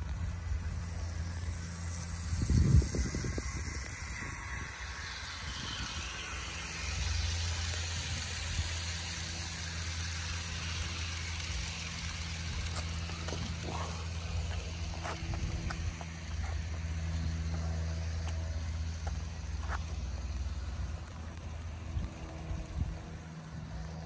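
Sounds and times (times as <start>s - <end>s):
model train hum and hiss: 0.0s - 24.0s.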